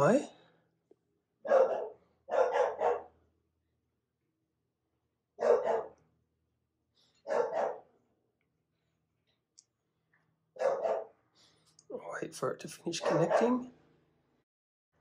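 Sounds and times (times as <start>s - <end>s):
dog barking: 1.4s - 3.2s, 5.4s - 6.0s, 7.2s - 7.9s, 10.6s - 11.2s, 13.0s - 13.7s.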